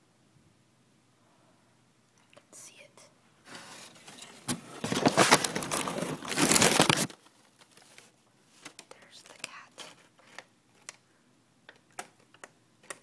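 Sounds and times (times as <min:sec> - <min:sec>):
paper crinkling and rustling: 0:03.5 - 0:11.0.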